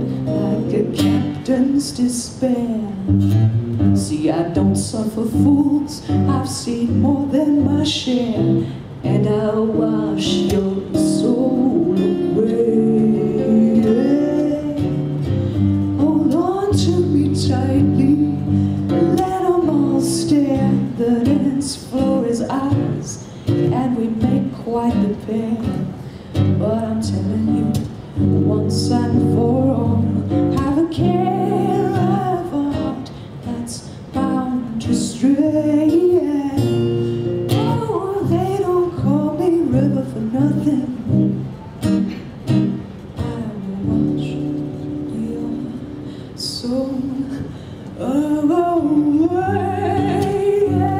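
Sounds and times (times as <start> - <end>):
strummed acoustic guitar: 0.0 - 50.9
woman singing folk song: 0.0 - 50.9.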